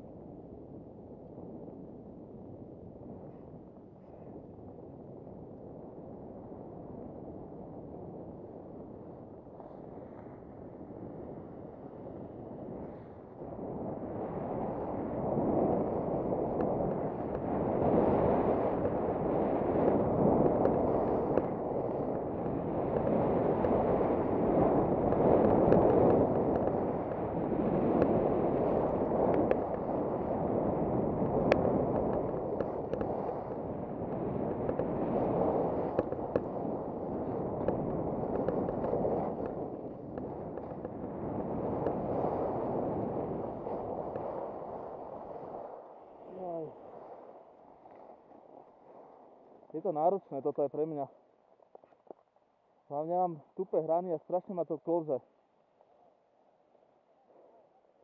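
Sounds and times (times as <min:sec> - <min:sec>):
wind rushing over microphone: 0:00.0 - 0:52.2
skis scraping on snow: 0:14.7 - 0:49.3
man talking: 0:49.7 - 0:51.1, 0:52.9 - 0:55.2.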